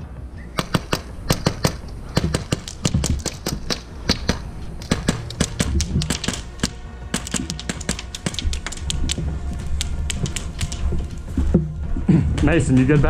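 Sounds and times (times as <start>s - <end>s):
low thumps: 0.0s - 13.0s
airsoft gunfire cracks: 0.6s - 9.0s
bbs striking plywood: 0.6s - 11.8s.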